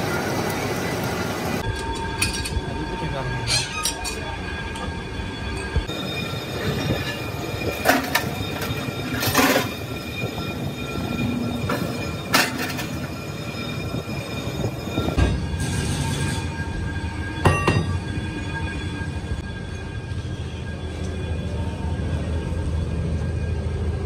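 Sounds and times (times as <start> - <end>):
metal clanks: 5.6 - 10.5, 11.1 - 13.3.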